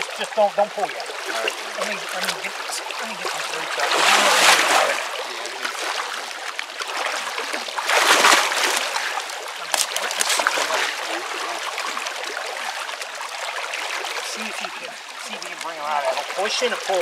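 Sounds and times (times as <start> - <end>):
running stream: 0.0 - 17.0
hands splashing in water: 1.3 - 6.1, 7.8 - 12.0.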